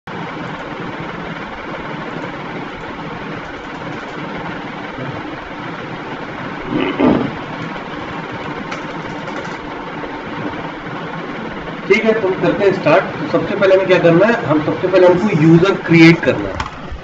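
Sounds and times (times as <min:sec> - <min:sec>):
steady background rumble: 0:00.1 - 0:17.0.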